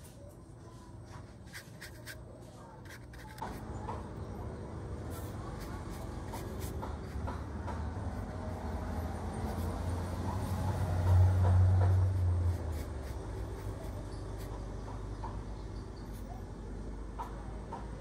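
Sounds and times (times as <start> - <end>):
brush scratching on paper: 1.2 - 3.6, 5.0 - 7.4, 8.1 - 14.7.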